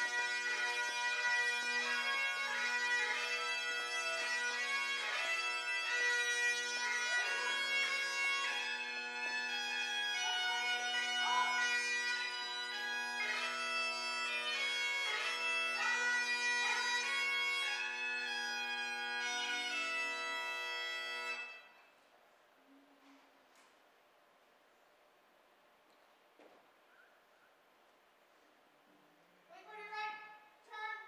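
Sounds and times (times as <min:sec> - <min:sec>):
bagpipes playing a melody: 0:00.0 - 0:21.9.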